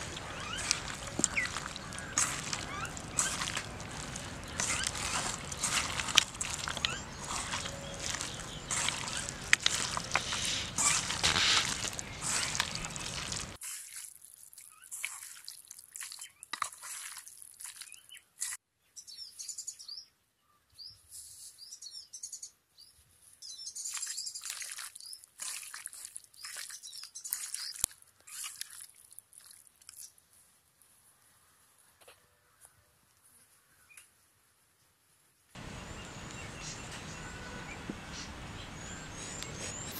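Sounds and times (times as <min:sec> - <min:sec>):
small birds chirping: 0:00.0 - 0:13.6, 0:17.6 - 0:28.7, 0:35.6 - 0:39.9
hands squelching chicken in marinade: 0:00.0 - 0:18.6, 0:23.8 - 0:30.2.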